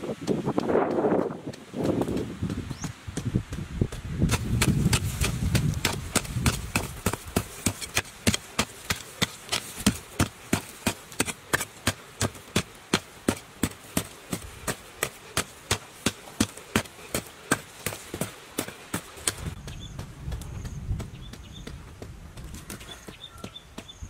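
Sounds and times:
hoe chopping into hard soil: 0:04.2 - 0:19.5.

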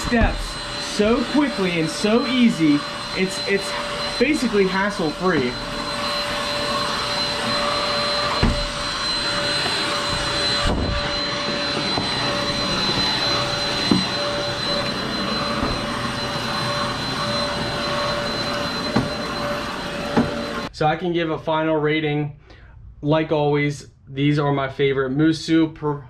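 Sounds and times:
vacuum cleaner motor whine: 0:00.0 - 0:20.7.

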